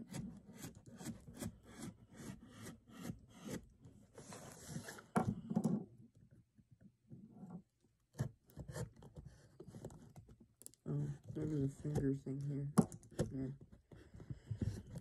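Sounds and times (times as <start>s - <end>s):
blade cutting cardboard: 0.0s - 3.7s.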